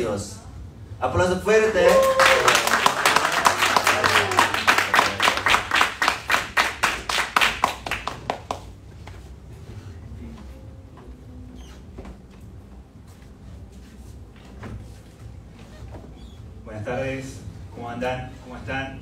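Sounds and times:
crowd applauding: 1.8 - 8.7.

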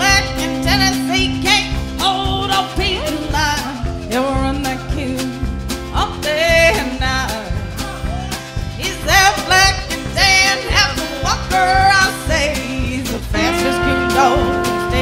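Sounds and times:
country band playing: 0.0 - 15.0
sliding lead guitar line: 0.0 - 15.0.

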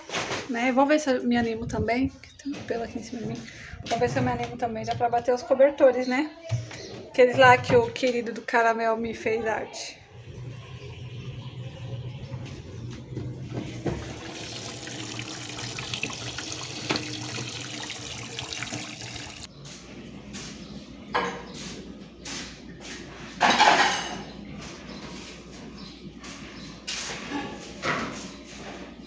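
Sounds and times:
water rushing into washing machine: 10.0 - 19.5.

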